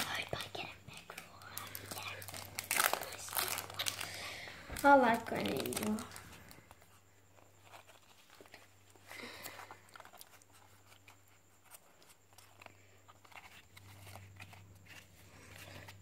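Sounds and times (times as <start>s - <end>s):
low steady hum: 0.0s - 16.0s
trading cards rustling and clicking: 0.0s - 16.0s.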